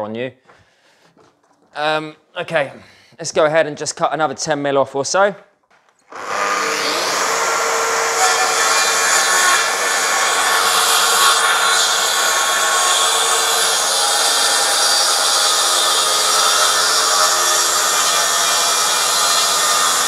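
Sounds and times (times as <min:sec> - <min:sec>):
plunge saw cutting a board: 0:06.1 - 0:20.0.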